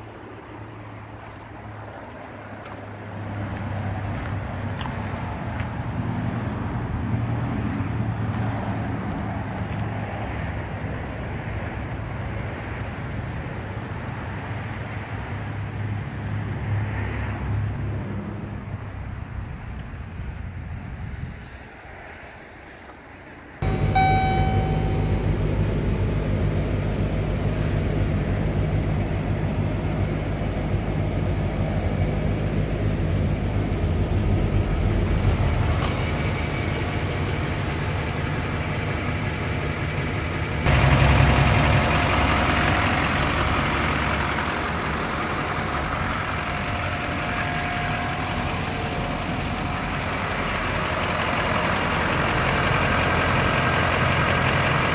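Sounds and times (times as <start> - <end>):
truck engine idling: 0.0 - 13.8, 23.6 - 54.9
short beep: 23.6 - 25.6.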